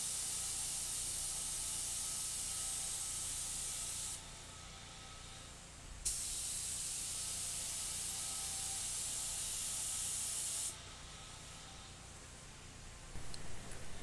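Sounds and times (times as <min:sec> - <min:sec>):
spray gun hissing: 0:00.0 - 0:04.2, 0:06.0 - 0:10.8
low steady hum: 0:10.8 - 0:14.0.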